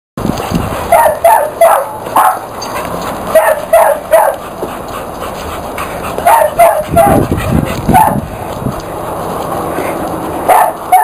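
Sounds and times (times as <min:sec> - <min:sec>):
dog barking: 0:00.9 - 0:02.5, 0:03.3 - 0:04.4, 0:06.2 - 0:07.2, 0:07.9 - 0:08.2, 0:10.5 - 0:11.0.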